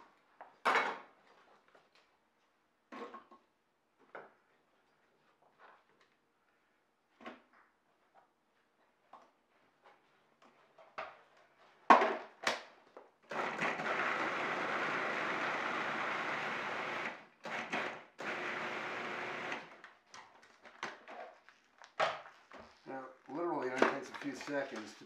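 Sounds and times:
food processor motor running: 0:13.3 - 0:19.8.

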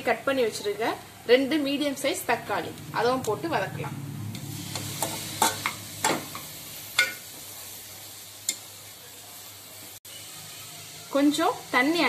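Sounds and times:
faint sizzle: 0:00.0 - 0:12.0
ladle clinking and scraping pot: 0:04.4 - 0:06.4.

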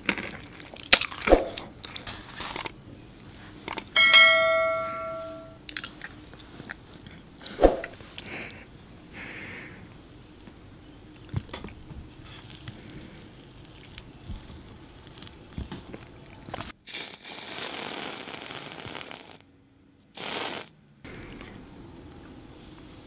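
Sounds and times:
sticky mouth eating sounds: 0:00.0 - 0:03.9, 0:05.7 - 0:07.5, 0:11.1 - 0:19.4
fork clicks: 0:03.7 - 0:04.0
whipped cream can hissing: 0:16.9 - 0:19.4, 0:20.0 - 0:20.7.

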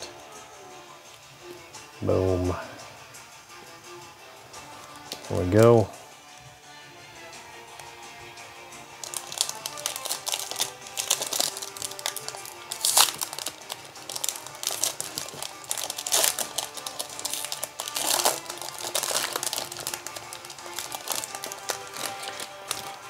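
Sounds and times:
background music: 0:00.0 - 0:23.0
cards pulled out: 0:09.0 - 0:23.0
foil pack crinkling: 0:09.0 - 0:23.0.

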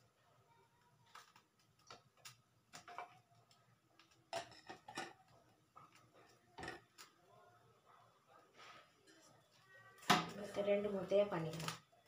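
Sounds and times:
kitchen utensils clicking and knocking: 0:01.2 - 0:07.2.

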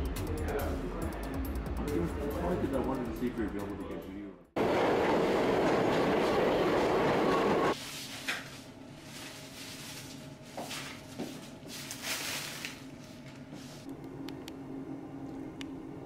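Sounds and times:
plastic bag rustling: 0:07.8 - 0:13.8.

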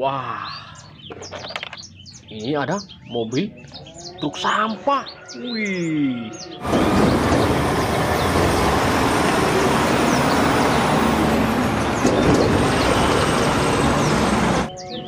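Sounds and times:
garbage trucks driving past: 0:06.6 - 0:14.8.

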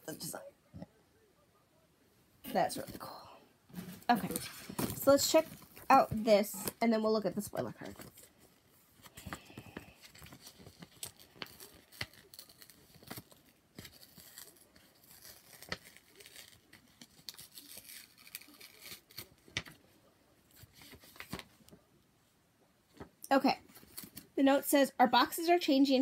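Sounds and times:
paper rustling: 0:03.7 - 0:21.9.

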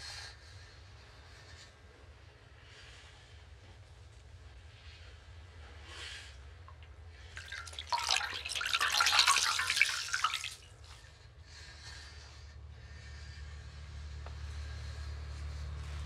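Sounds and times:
hand scooping wet food from pot: 0:07.4 - 0:10.7.

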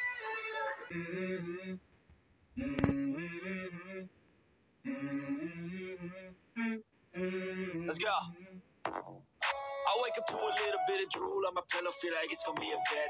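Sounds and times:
person singing: 0:09.4 - 0:13.0.

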